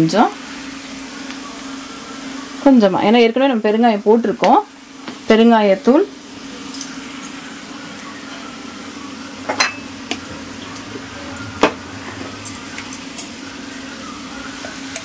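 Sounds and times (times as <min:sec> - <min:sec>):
faint sizzling in pan: 0:00.0 - 0:15.0
steady low hum: 0:08.6 - 0:15.0.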